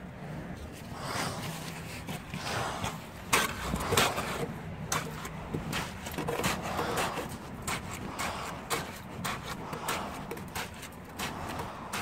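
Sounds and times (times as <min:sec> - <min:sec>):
stick knocking in wet concrete: 0:03.3 - 0:12.0.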